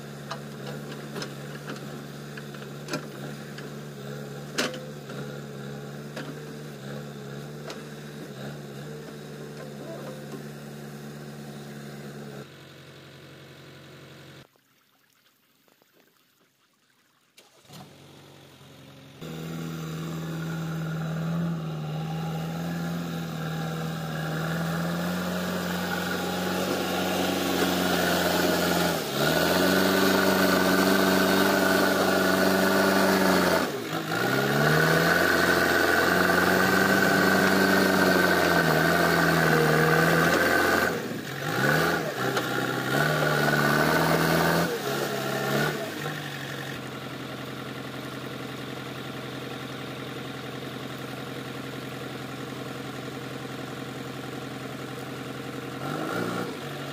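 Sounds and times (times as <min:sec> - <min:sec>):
diesel engine under load: 0:00.0 - 0:14.5, 0:17.6 - 0:56.9.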